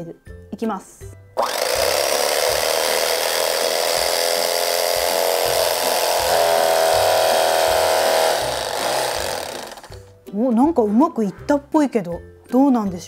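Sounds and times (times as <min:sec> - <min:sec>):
electric knife buzzing: 0:01.4 - 0:10.1.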